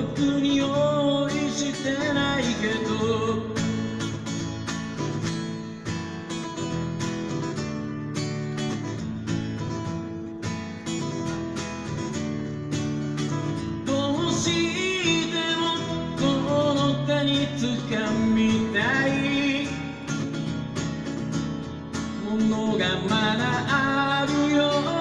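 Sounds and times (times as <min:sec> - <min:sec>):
man singing: 0:00.0 - 0:04.2, 0:13.8 - 0:20.3, 0:22.0 - 0:25.0
acoustic guitar strummed: 0:00.0 - 0:25.0.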